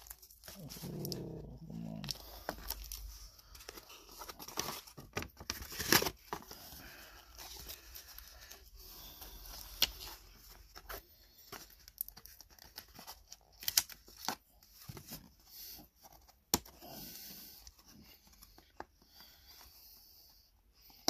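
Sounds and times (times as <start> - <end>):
plastic sleeve and tape crinkling: 0.0 - 8.7.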